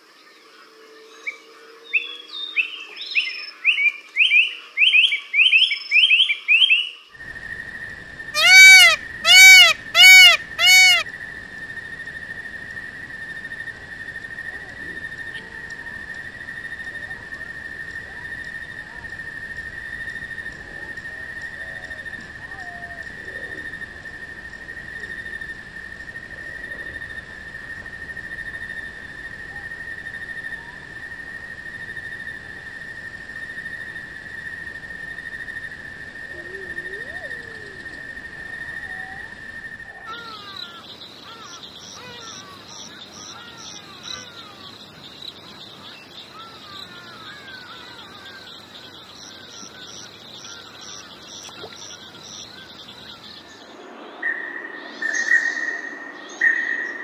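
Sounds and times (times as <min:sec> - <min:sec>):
insect drone: 0:00.0 - 0:57.0
low bird notes: 0:08.4 - 0:11.0
short falling chirps: 0:08.4 - 0:11.0.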